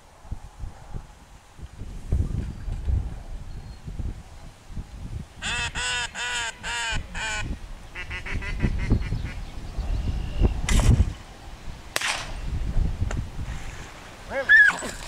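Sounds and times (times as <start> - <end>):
duck call quacks: 5.4 - 9.4.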